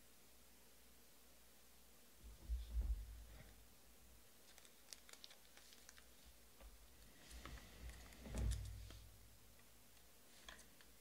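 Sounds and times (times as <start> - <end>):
cards clicking and rustling: 4.4 - 6.1.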